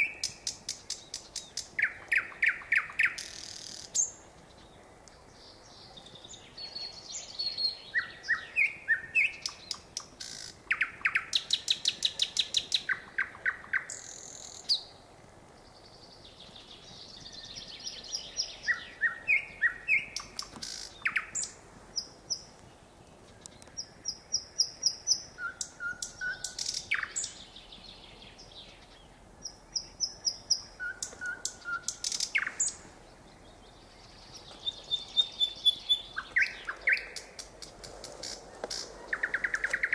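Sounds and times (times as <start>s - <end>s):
nightingale singing: 0.0s - 39.9s.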